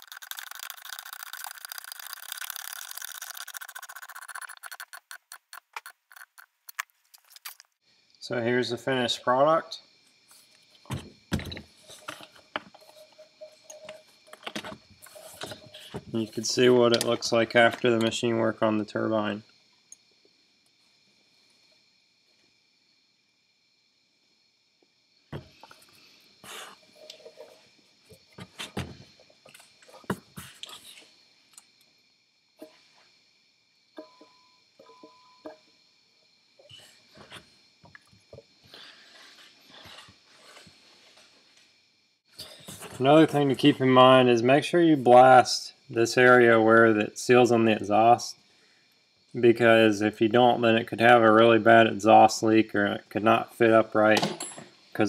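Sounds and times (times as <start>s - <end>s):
hand ratchet clicking: 0.0s - 6.8s
rubbing and rustling: 0.0s - 7.7s.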